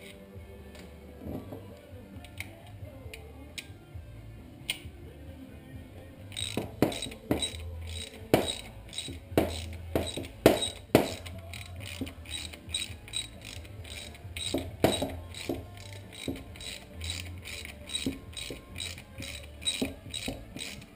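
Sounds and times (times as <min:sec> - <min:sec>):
ratchet wrench clicking: 0:06.3 - 0:20.9
metallic knocks: 0:06.4 - 0:11.3, 0:13.9 - 0:20.8.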